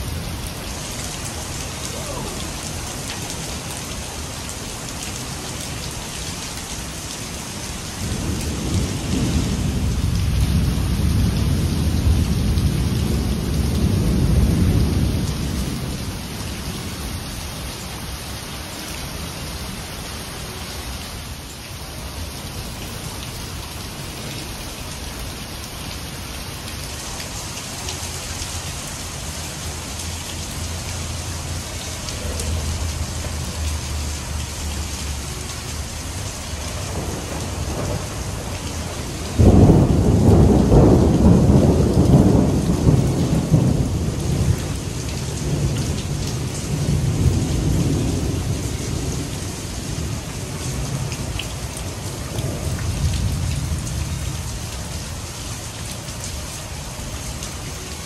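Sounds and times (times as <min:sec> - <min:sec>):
heavy rain pouring: 0:00.0 - 0:58.0
low thunder rumbling: 0:08.0 - 0:16.5, 0:36.7 - 0:51.3
loud thunderclap: 0:39.4 - 0:44.5.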